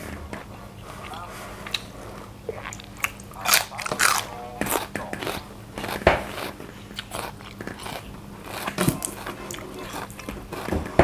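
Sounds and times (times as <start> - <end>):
pea pod crunching: 2.5 - 10.8.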